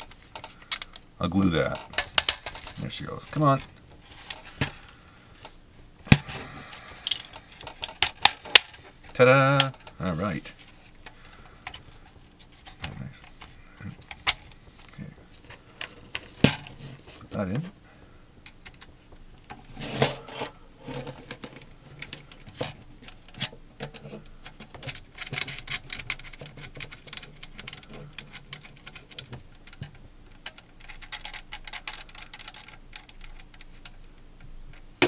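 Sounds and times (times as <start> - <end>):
hard plastic clicking and rattling: 0.0 - 10.1, 18.4 - 34.9.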